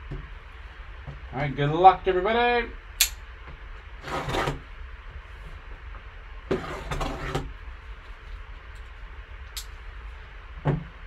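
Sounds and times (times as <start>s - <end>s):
sharp click: 3.0s - 3.2s
cardboard box rubbing and scraping: 4.0s - 4.6s, 6.5s - 7.5s.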